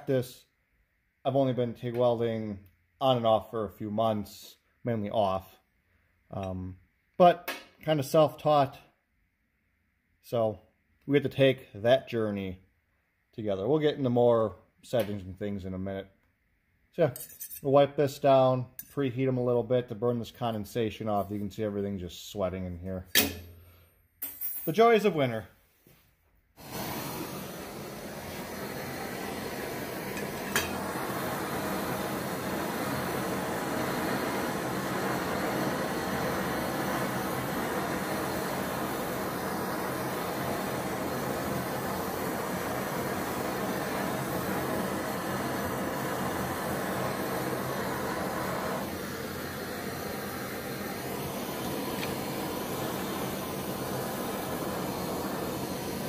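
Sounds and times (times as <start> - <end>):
gas torch flame hissing: 26.5 - 56.0.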